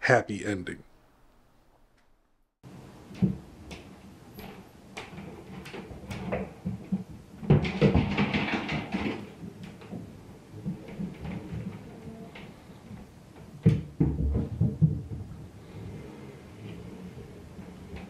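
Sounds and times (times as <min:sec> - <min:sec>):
knocks and clattering: 0:03.1 - 0:16.0.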